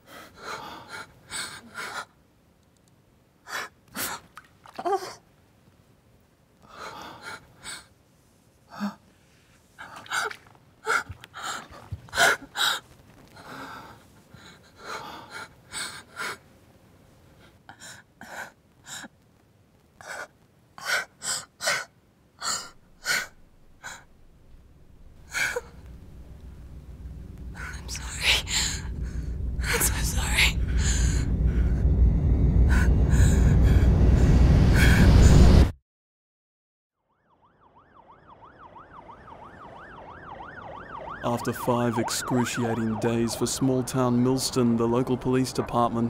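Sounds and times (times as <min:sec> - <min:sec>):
woman gasping and breathing: 0:27.5 - 0:31.8.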